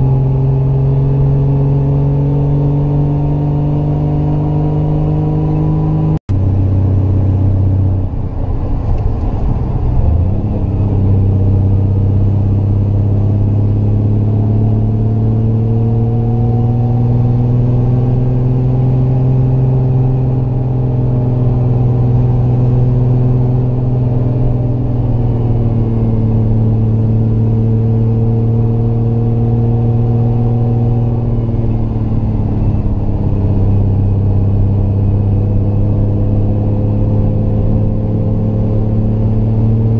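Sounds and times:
car engine pulling uphill: 0:00.0 - 0:39.9.

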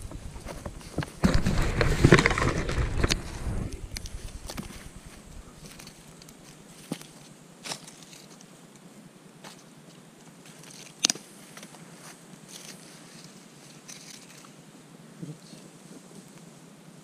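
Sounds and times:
campfire crackling: 0:00.0 - 0:08.5
sharp fire pops: 0:00.8 - 0:05.8.

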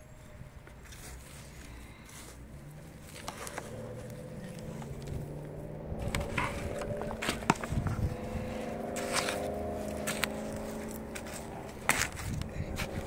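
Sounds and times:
steady low hum: 0:00.0 - 0:13.0
soil crunches and clicks: 0:00.6 - 0:13.0
trowel scraping soil: 0:06.0 - 0:13.0.

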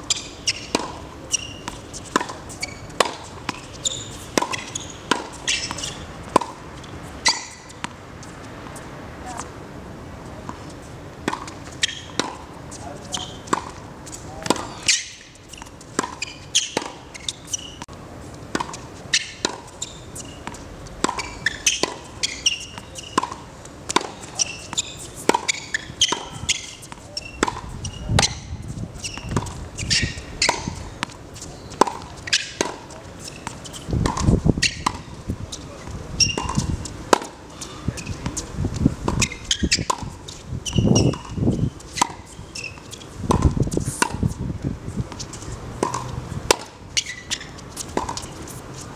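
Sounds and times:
tennis ball hit by rackets: 0:00.1 - 0:08.0, 0:10.4 - 0:13.8, 0:14.4 - 0:17.8, 0:18.5 - 0:35.1, 0:36.2 - 0:38.5, 0:39.1 - 0:44.4, 0:45.1 - 0:48.5
ball bouncing on hard court: 0:20.5 - 0:31.1.

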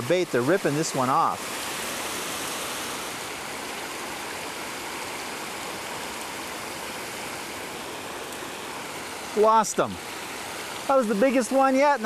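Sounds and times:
stream water flowing: 0:00.0 - 0:12.0.

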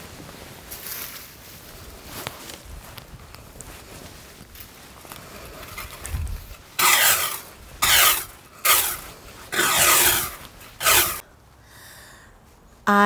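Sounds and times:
garden rake scraping wet lawn: 0:05.0 - 0:11.2.

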